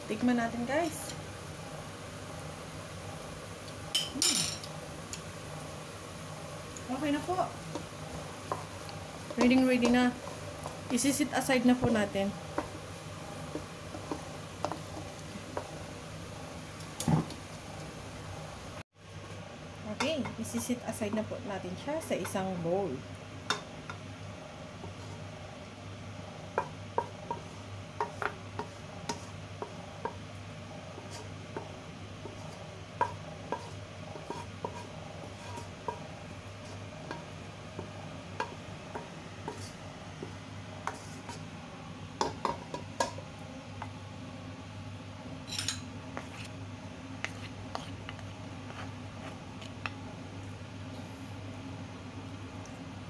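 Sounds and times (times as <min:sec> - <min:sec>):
spatula scraping and tapping pan: 0:07.2 - 0:12.8, 0:13.4 - 0:15.8, 0:26.6 - 0:30.2, 0:30.9 - 0:41.4, 0:47.2 - 0:50.0.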